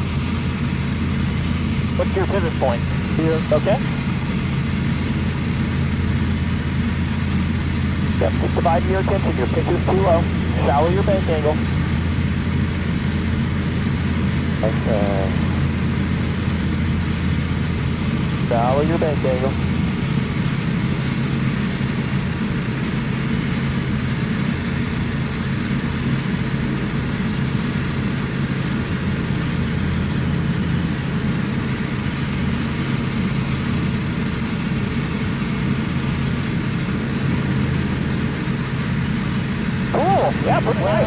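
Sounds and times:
aircraft engine and propeller droning: 0:00.0 - 0:41.0.

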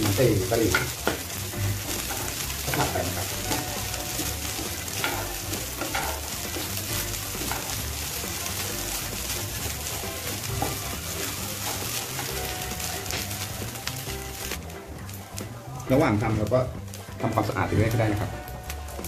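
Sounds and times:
wooden spatula scraping a pan: 0:00.0 - 0:14.6
rice sizzling in a frying pan: 0:00.0 - 0:19.0.

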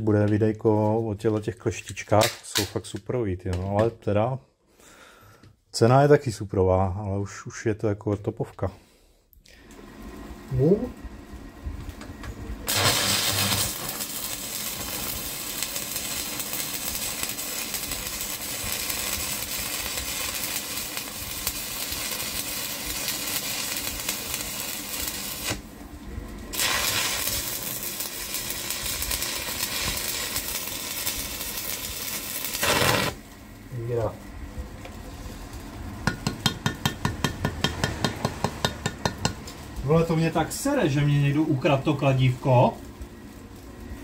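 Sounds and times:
welding arc crackling and hissing: 0:11.6 - 0:44.0.

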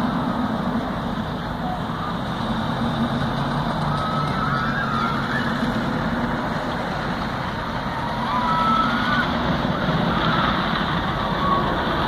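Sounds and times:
distant traffic rumble: 0:00.0 - 0:12.0.

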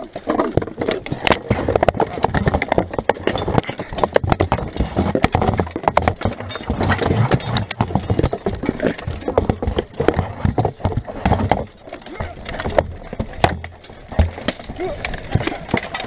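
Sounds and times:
armour and weapons clanking: 0:00.0 - 0:16.0
weapons striking wooden shields: 0:00.0 - 0:16.0.

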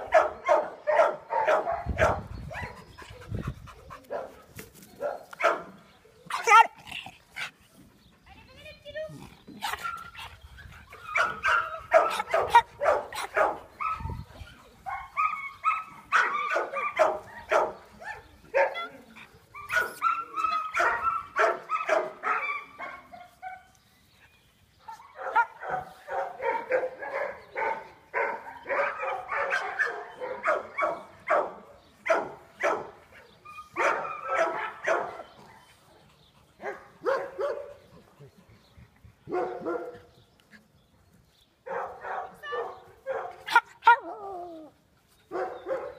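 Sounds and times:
dogs barking: 0:00.0 - 0:03.1, 0:03.8 - 0:07.5, 0:10.9 - 0:14.2, 0:14.8 - 0:19.0, 0:19.6 - 0:23.7, 0:24.9 - 0:35.6, 0:36.5 - 0:37.9, 0:39.3 - 0:40.1, 0:41.6 - 0:44.2, 0:45.3 - 0:45.9.

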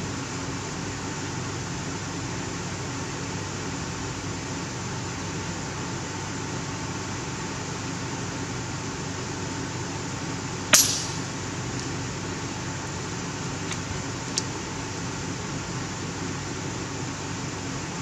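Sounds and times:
steady background hiss: 0:00.0 - 0:18.0
air rifle shot: 0:10.7 - 0:11.4.

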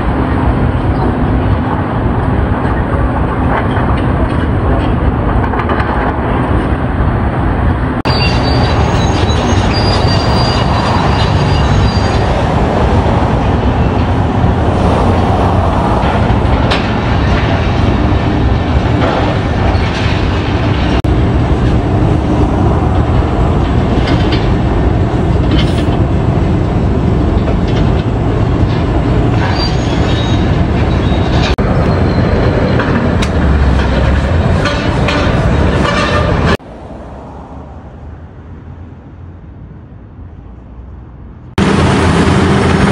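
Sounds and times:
demolition excavators din: 0:00.0 - 0:37.4
high metal squeals: 0:08.1 - 0:12.6, 0:29.4 - 0:32.8.

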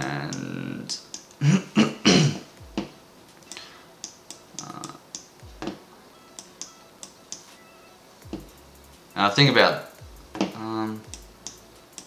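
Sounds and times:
computer clicks: 0:03.4 - 0:07.5, 0:10.3 - 0:12.0.

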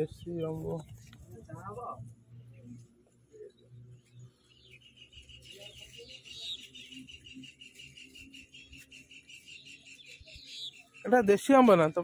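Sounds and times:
high bird chirps: 0:03.4 - 0:12.0
bird trilling: 0:04.3 - 0:12.0.

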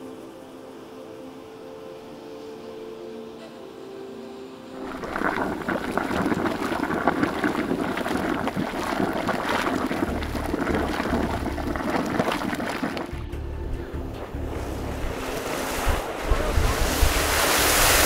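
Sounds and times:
hot spring boiling and bubbling: 0:00.0 - 0:18.0
wind rumble on microphone: 0:04.8 - 0:18.0.

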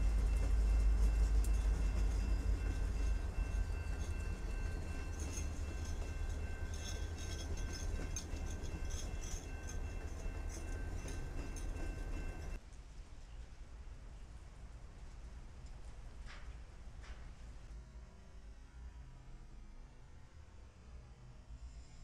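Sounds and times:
faint steady high tones: 0:00.0 - 0:12.6
locomotive engine rumble: 0:00.0 - 0:12.6
train wheel noise: 0:00.0 - 0:12.6.

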